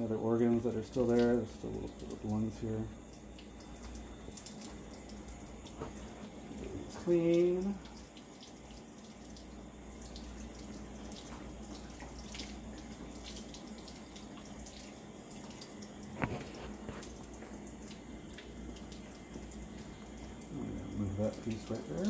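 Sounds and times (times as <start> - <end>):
tap water splashing: 0.9 - 20.5.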